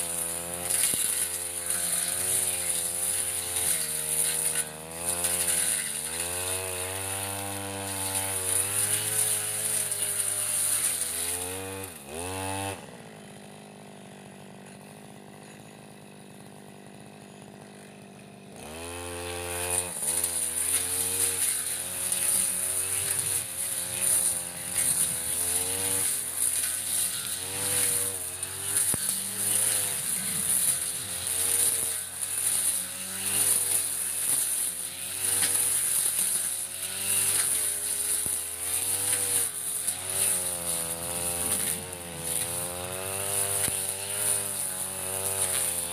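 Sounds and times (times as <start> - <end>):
brush cutter engine idling: 0.0 - 45.9
brush cutter engine revving: 0.0 - 45.9.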